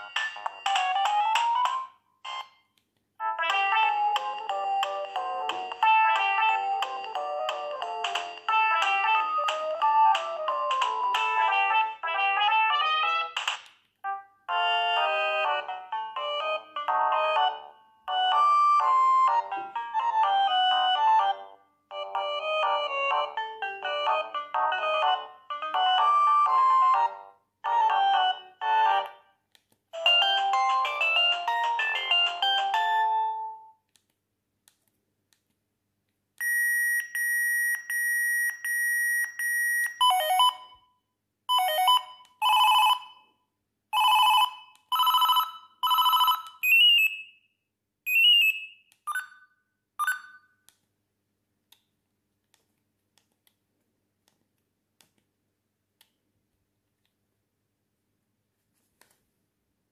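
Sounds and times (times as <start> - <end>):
phone ringtone melody: 0.0 - 2.6, 14.5 - 29.1, 30.0 - 33.7, 36.4 - 40.8, 41.5 - 43.4, 44.0 - 47.3, 48.1 - 50.5
phone ring tones: 36.4 - 40.8, 41.5 - 43.3, 44.0 - 47.2, 48.1 - 50.5.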